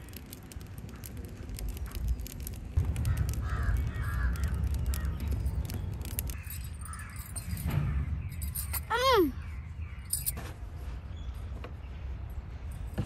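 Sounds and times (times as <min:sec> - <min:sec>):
wood fire crackling: 0:00.0 - 0:08.7
crow cawing: 0:03.0 - 0:05.2.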